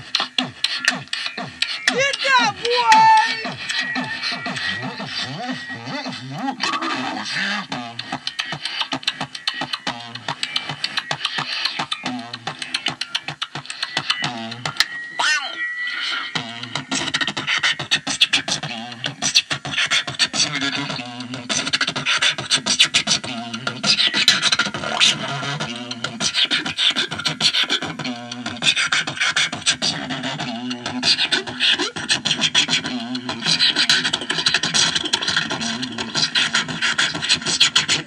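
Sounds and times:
beatboxing mouth clicks: 0.0 - 15.0, 16.1 - 38.0
low vocal hums: 2.6 - 14.8, 29.6 - 38.0.

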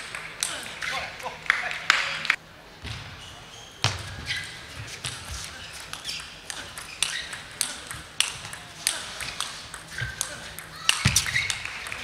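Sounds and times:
ping pong ball clicking off bats: 5.8 - 12.0
ball bouncing on table: 9.2 - 12.0.

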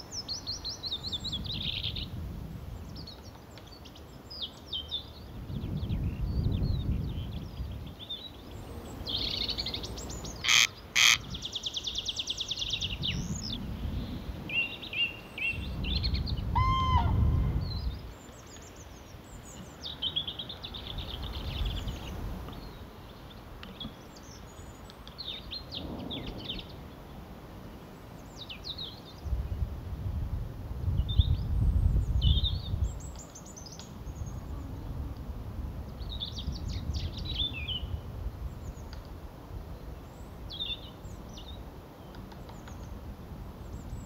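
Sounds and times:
birds calling and singing: 2.8 - 27.2, 35.9 - 39.1
gusty low rumble: 5.4 - 7.9, 15.6 - 18.0, 29.3 - 32.9.

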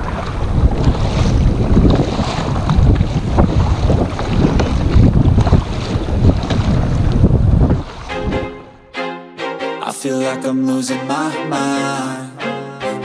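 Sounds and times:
water splashing against kayak: 0.0 - 8.7
wind buffeting microphone: 0.0 - 8.9.

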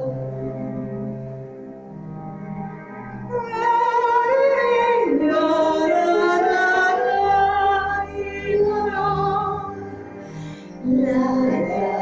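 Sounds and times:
woman singing long held notes: 10.8 - 12.0.

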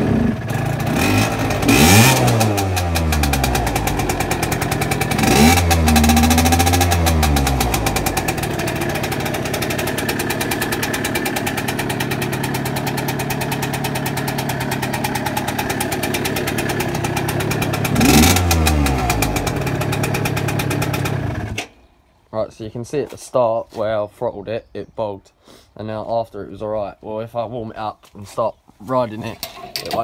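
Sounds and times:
scooter engine idling: 0.0 - 21.6
two-stroke scooter engine revving: 0.0 - 21.7.

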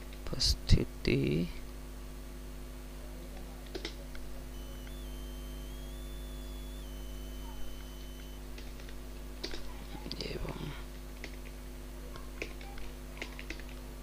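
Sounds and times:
low electrical hum: 0.0 - 14.0
faint high thin whine: 4.4 - 8.5.

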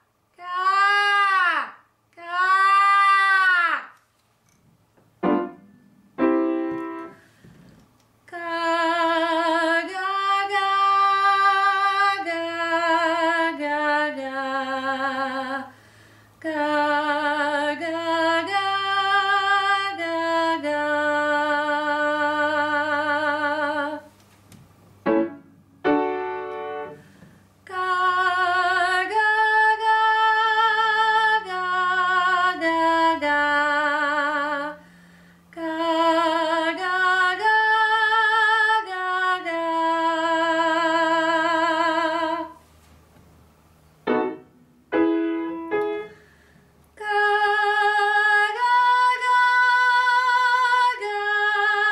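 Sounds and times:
woman singing unaccompanied: 0.3 - 3.8, 8.2 - 15.8, 16.4 - 24.2, 27.6 - 34.9, 35.5 - 42.6, 47.0 - 51.9
piano note: 5.2 - 7.2, 25.0 - 27.0, 44.1 - 46.1.

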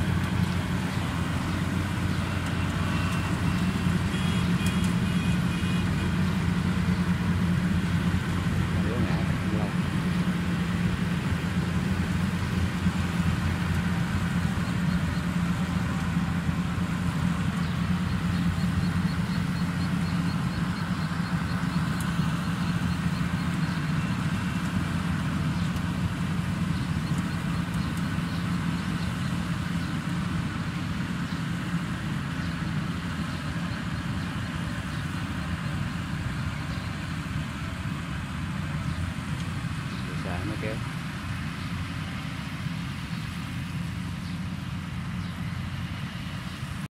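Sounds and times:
combine harvester engine running: 0.0 - 46.9.

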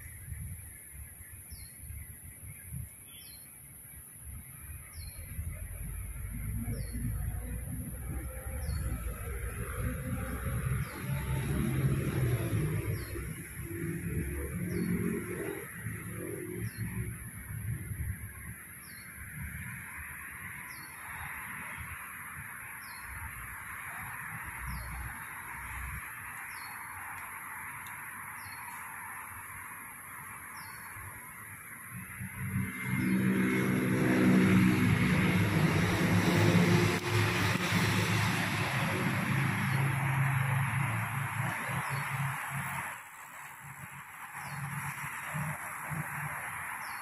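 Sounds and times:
vehicle engine passing: 7.6 - 16.7, 32.2 - 43.0
vehicle engine low hum: 32.0 - 46.2.

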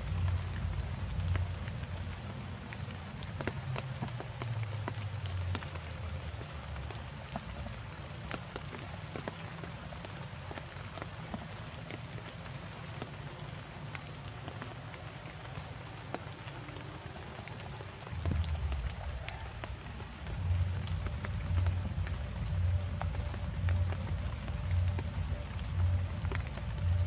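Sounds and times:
low rumble: 0.0 - 3.8, 17.7 - 27.0
rain dripping: 0.0 - 27.0.

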